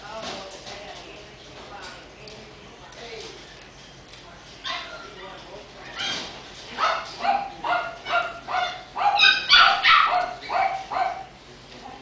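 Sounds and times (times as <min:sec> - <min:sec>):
puppy yipping: 0:04.6 - 0:05.1, 0:05.9 - 0:06.2, 0:06.8 - 0:11.3.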